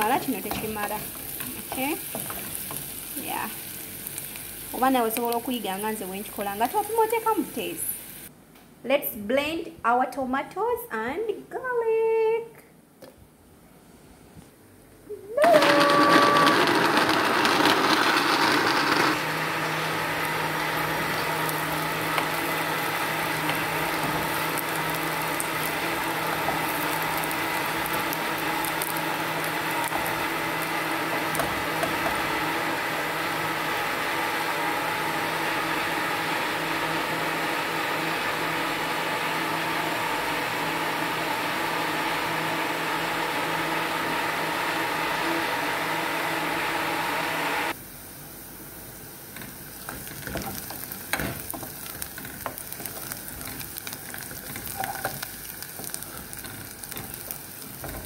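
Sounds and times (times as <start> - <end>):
steady hum and hiss: 0.0 - 15.4, 47.6 - 58.0
blender motor whining: 15.3 - 47.8.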